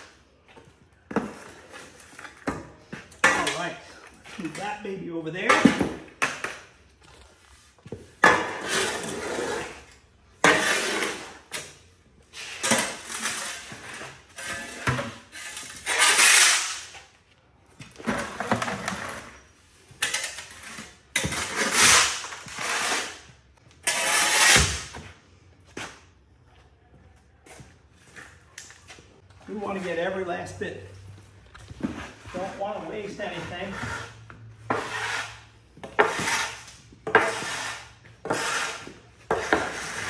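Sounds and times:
shovel scraping concrete: 1.1s - 6.7s, 7.5s - 17.1s, 18.0s - 25.0s, 31.6s - 40.0s.

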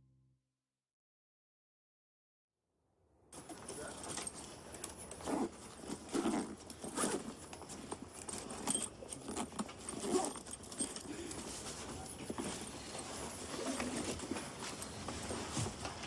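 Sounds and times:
fabric rustling: 3.4s - 16.0s
zip and buckles clinking: 3.4s - 16.0s.

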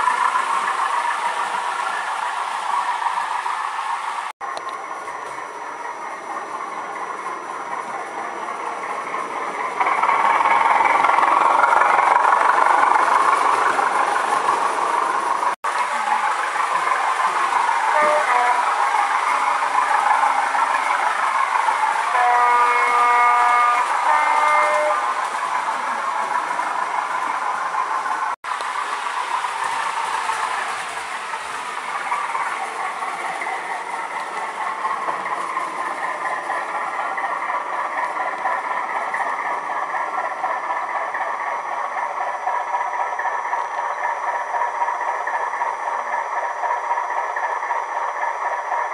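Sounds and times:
model train diesel engine sound: 0.0s - 48.9s
train horn: 17.6s - 19.1s, 22.0s - 25.2s.

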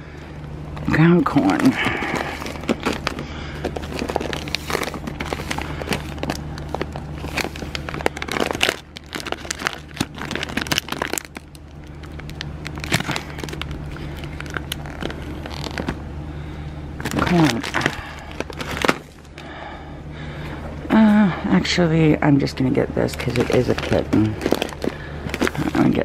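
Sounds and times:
steady low hum: 0.0s - 26.0s
food bag crinkling: 0.8s - 16.0s, 17.0s - 19.4s, 23.1s - 26.0s.

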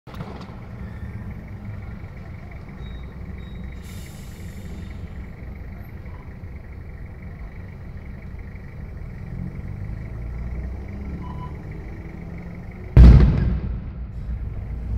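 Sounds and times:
brief hiss: 3.8s - 5.0s.

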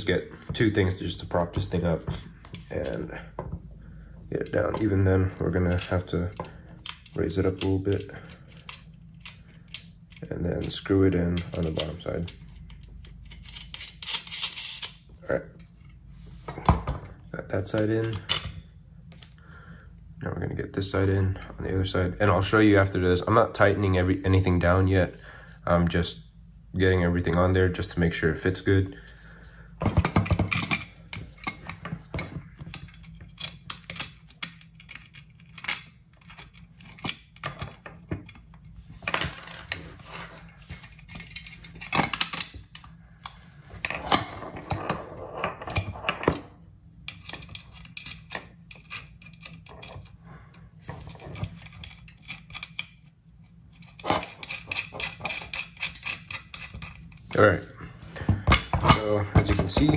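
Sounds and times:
bolts and nuts clinking: 0.0s - 19.3s, 29.8s - 59.9s
metal parts knocking and scraping: 4.4s - 19.3s, 29.8s - 59.9s.

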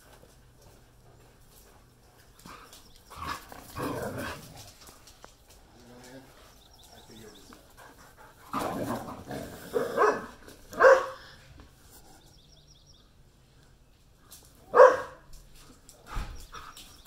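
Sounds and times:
dog growling: 2.4s - 4.9s, 8.4s - 10.4s
dogs barking: 9.7s - 11.3s, 14.7s - 15.3s.

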